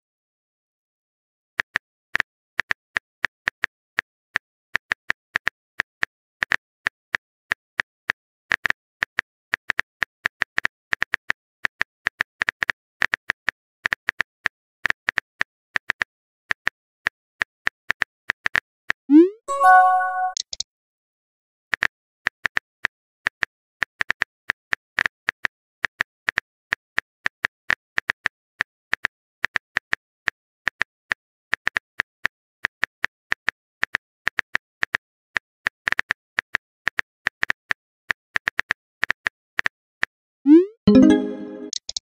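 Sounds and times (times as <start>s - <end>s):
rising pop message sound: 19.1s - 20.4s, 40.5s - 41.8s.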